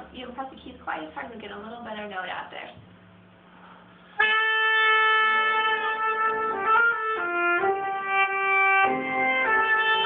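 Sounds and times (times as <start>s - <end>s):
oboe melody: 4.2s - 10.0s.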